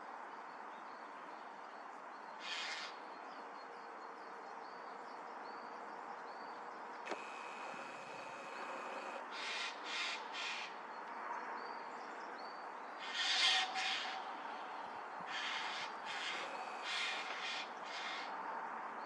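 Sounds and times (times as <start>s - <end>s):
crows cawing: 2.4s - 3.0s, 8.3s - 10.8s, 13.0s - 18.3s
click: 7.1s - 7.8s.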